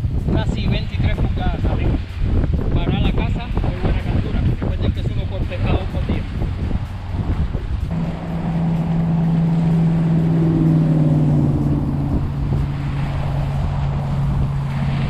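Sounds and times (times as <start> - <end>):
wind rumble on microphone: 0.0 - 15.0
engine droning: 5.1 - 15.0.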